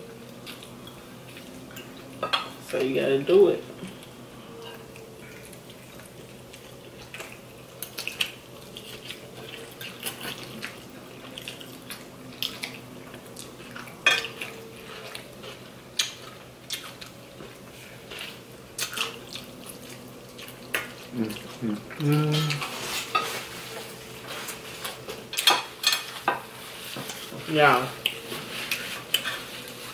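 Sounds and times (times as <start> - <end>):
chewing and lip smacks: 3.9 - 22.7
forks tapping and scraping plates: 22.6 - 27.5, 28.3 - 29.9.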